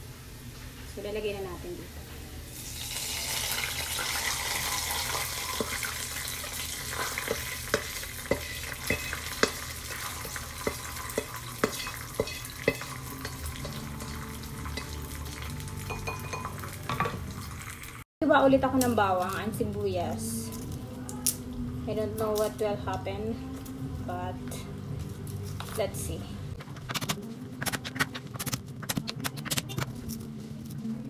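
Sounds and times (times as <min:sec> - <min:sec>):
oil sizzling in a frying pan: 0:02.5 - 0:18.0
utensil tapping a pan: 0:06.9 - 0:15.0.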